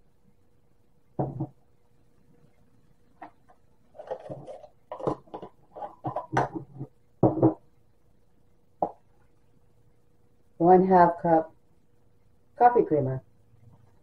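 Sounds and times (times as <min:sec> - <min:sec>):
plastic cup knocking on funnel: 0:01.2 - 0:01.5, 0:07.2 - 0:07.6.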